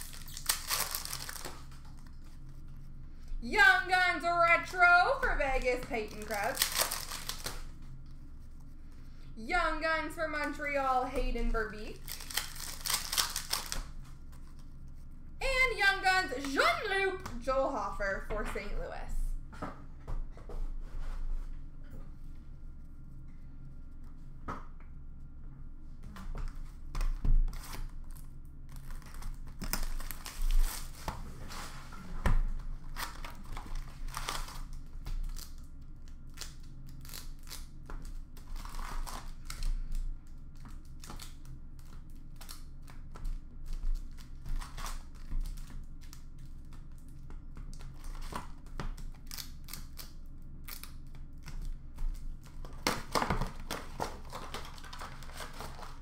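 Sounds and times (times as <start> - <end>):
wrappers and cardboard tearing: 0.0 - 2.4, 4.4 - 7.7, 11.8 - 14.6, 27.5 - 31.7, 32.8 - 40.0, 40.6 - 47.1, 47.7 - 56.0.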